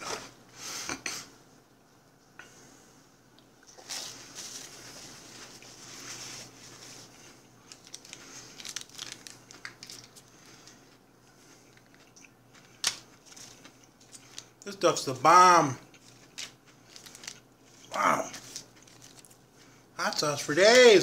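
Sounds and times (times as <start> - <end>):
plastic packet tearing and crinkling: 7.6 - 10.3, 11.8 - 14.5, 15.9 - 17.4, 18.3 - 19.4.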